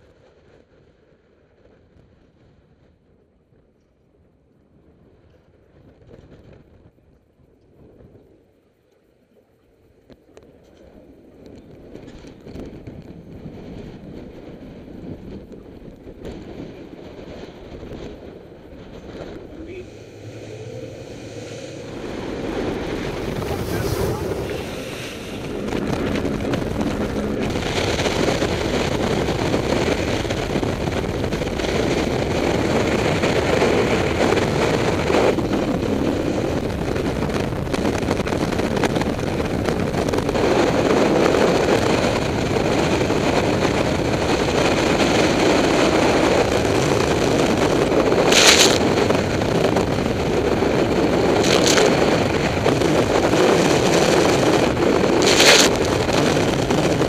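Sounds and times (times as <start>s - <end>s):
outboard motors droning: 14.4s - 57.0s
rushing water: 19.3s - 30.5s.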